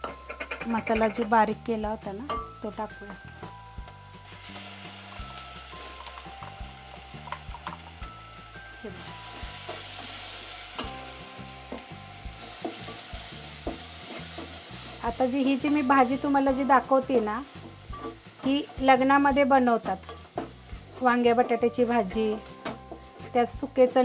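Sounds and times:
spatula scraping a pot: 0.0 - 1.2, 12.8 - 15.0
onions sizzling in hot oil: 1.8 - 24.0.

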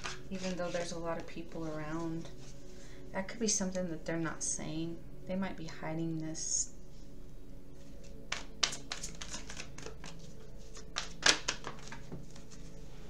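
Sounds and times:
cards clicking and rustling: 0.0 - 0.9, 8.0 - 12.7
faint steady hum: 0.0 - 11.1.

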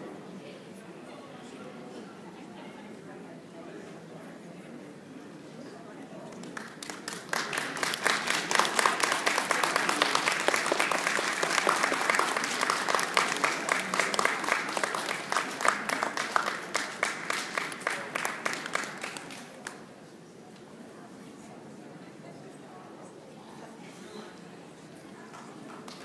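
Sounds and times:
audience applauding: 6.4 - 19.8.

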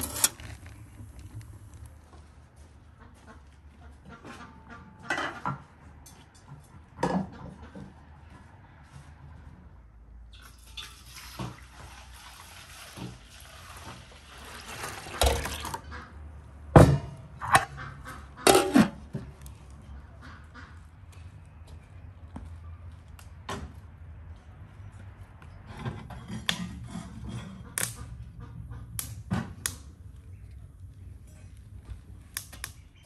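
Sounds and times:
milk pouring into pot: 10.4 - 15.8
metal pot lid clanking: 16.8 - 17.8, 18.5 - 19.0.

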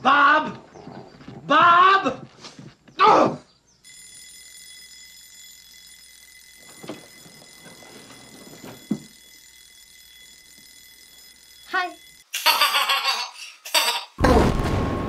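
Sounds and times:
high-pitched alarm tone: 3.8 - 14.0.

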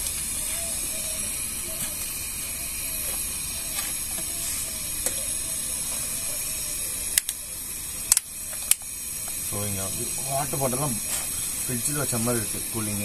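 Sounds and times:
camping stove hissing: 0.0 - 13.0
faint sizzling: 0.0 - 13.0
sharp clicks: 7.1 - 7.4, 8.1 - 9.4.

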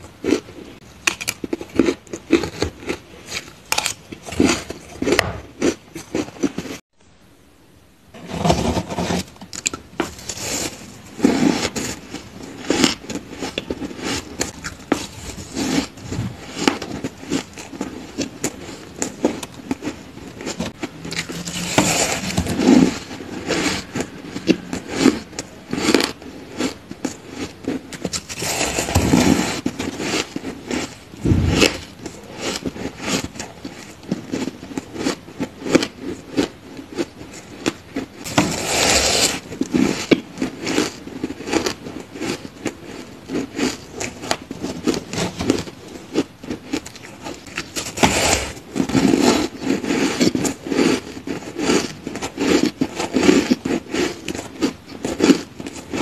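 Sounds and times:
crushed ice crunching: 8.3 - 36.4, 38.2 - 42.4.

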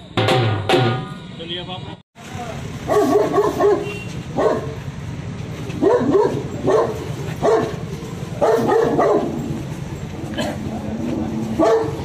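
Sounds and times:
background murmur: 1.0 - 12.0
dog barking: 2.9 - 4.8, 5.8 - 9.4, 11.6 - 12.0.

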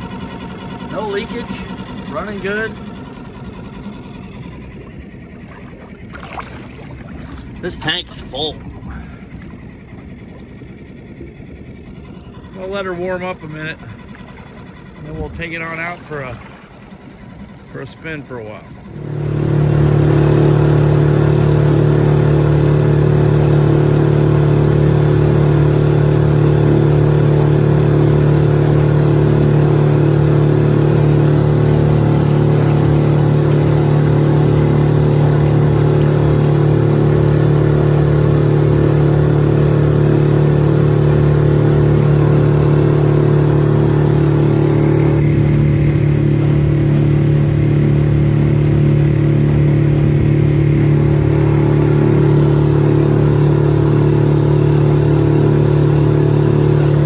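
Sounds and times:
outboard motor running: 0.0 - 57.0.

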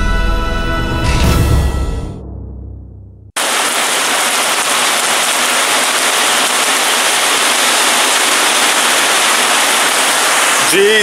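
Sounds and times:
heavy rain downpour: 3.4 - 11.0.

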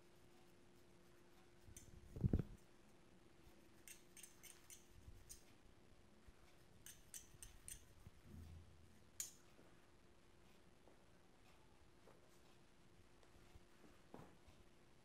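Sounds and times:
metal forks scratching through hair: 3.8 - 5.6, 6.8 - 8.0.

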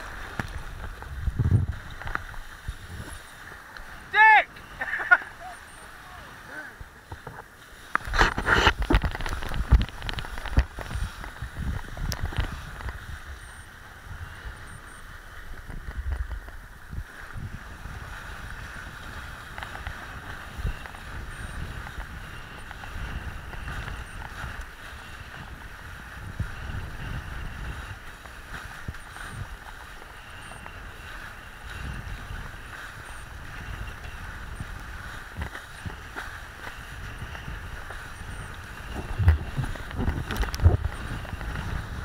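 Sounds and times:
board skimming across water: 0.0 - 42.0
wind buffeting microphone: 0.0 - 42.0
board knocking on waves: 6.8 - 13.0, 33.5 - 42.0.

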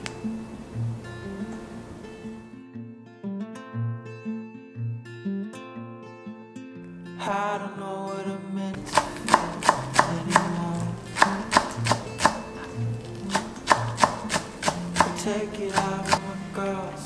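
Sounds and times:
knife chopping on wooden board: 8.8 - 16.2.

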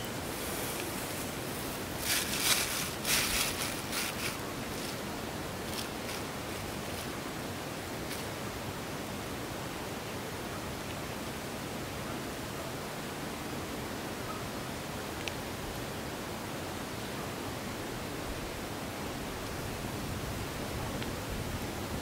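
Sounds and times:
steady hiss: 0.0 - 22.0
plastic bag crinkling: 1.9 - 5.0.

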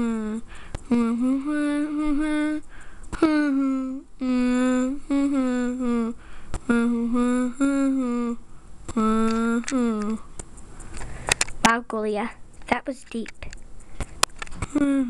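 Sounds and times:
child humming a tune: 0.0 - 10.3, 14.5 - 15.0.

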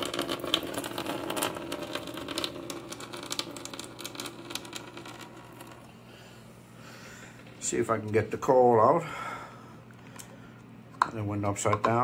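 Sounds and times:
water pouring and splashing: 0.0 - 5.9.

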